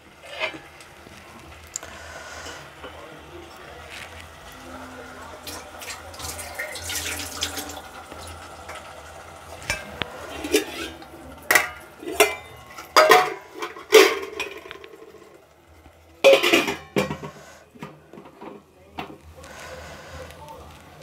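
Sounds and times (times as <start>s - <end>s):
steel plate clanking on pot: 0.2s - 0.7s, 9.6s - 15.4s, 16.2s - 18.6s.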